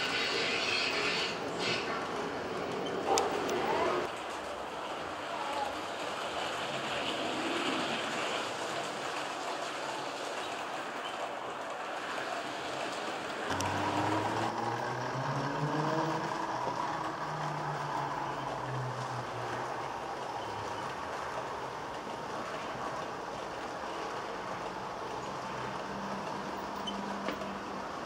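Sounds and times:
wheels running on rails: 0.0 - 28.0
model train motor humming: 12.5 - 28.0.

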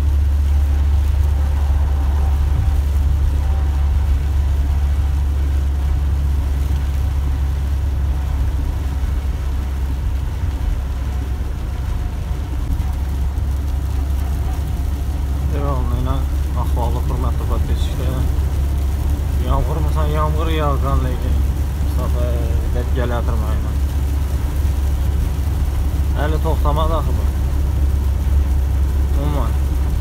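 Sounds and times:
truck engine low drone: 0.0 - 30.0.

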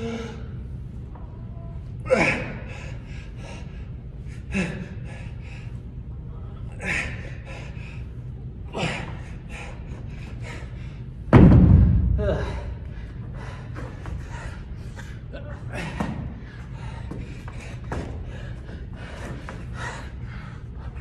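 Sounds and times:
dumbbells thudding on rubber floor: 11.3 - 12.6.

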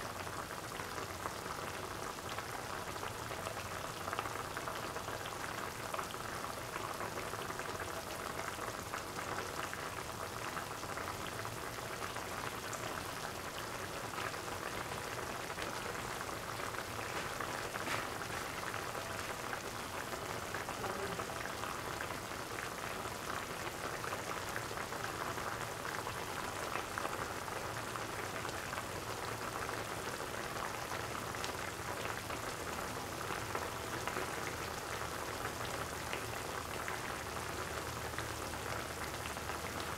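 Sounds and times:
curry bubbling in a pot: 0.0 - 39.9.

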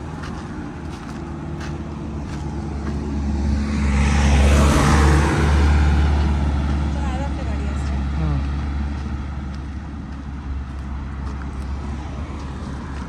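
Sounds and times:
vehicle engine driving past: 0.0 - 13.0.

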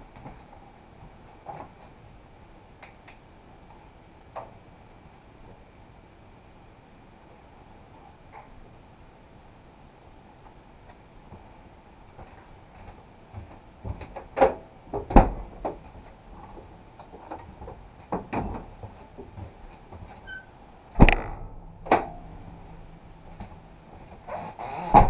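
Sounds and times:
faint steady background noise: 0.0 - 25.0
sharp knocks and clatter: 21.0 - 22.4.

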